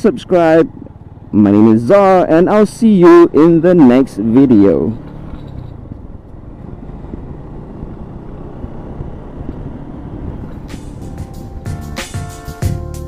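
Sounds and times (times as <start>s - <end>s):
motorcycle wind and road noise: 0.0s - 12.8s
sharp regular beats: 10.6s - 13.0s.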